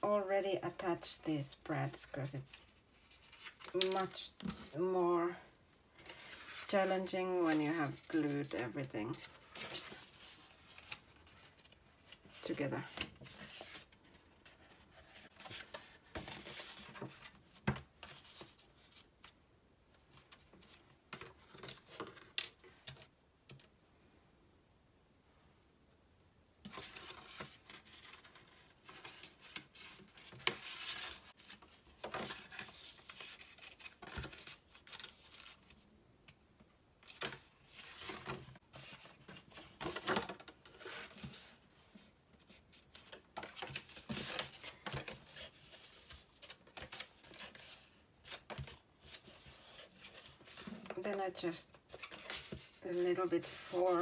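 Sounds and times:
paper envelope rustling: 5.9 - 17.4, 26.7 - 35.8, 37.0 - 54.0.

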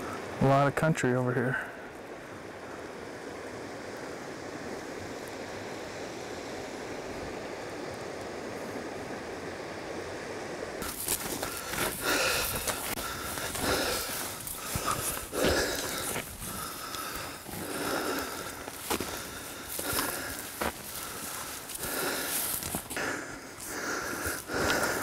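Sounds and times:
steady rushing noise: 0.0 - 25.0
footsteps through dry grass: 10.8 - 25.0.

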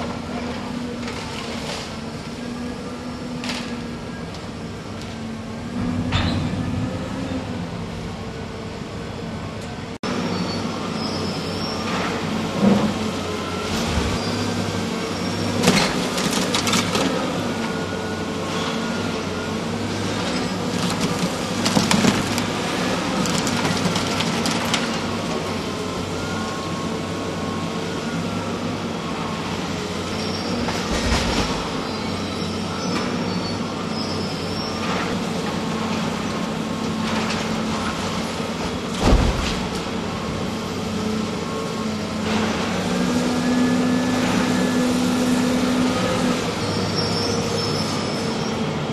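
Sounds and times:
excavator diesel engine whining: 0.0 - 39.0, 39.6 - 48.9
bricks crashing and clattering: 20.7 - 22.5.

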